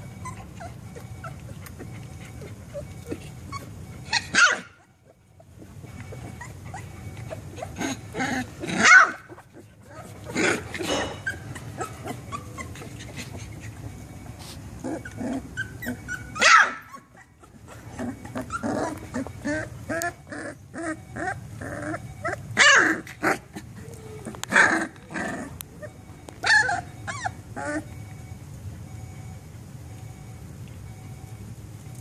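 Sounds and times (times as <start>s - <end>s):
puppy growling and yipping: 0.0s - 28.0s
puppy barking: 0.3s - 5.0s, 5.8s - 14.0s, 14.9s - 23.4s.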